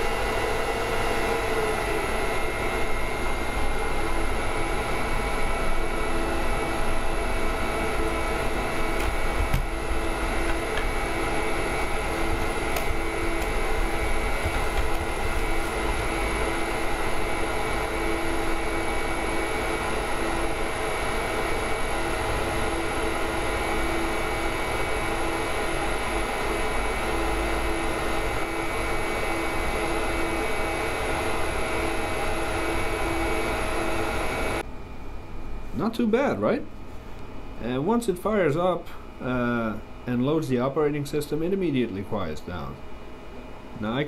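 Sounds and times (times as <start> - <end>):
steady whining tones: 0.0 - 34.7
cooling fans rushing air: 0.0 - 44.0.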